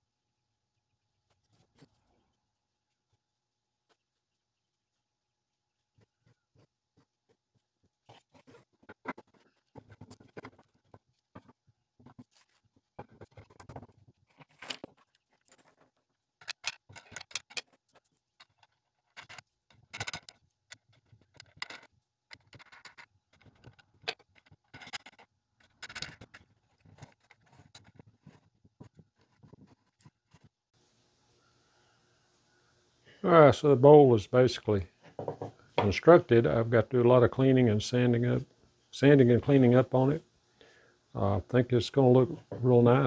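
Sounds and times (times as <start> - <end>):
metal washers clinking: 14.3 - 28.0
wood knocking on workbench: 35.1 - 35.9.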